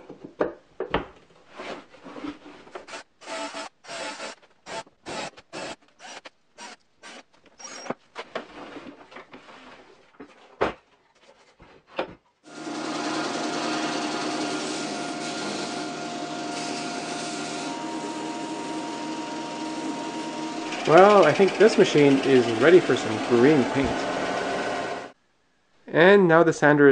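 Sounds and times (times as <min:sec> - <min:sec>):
belt sander humming: 0:12.5 - 0:25.2.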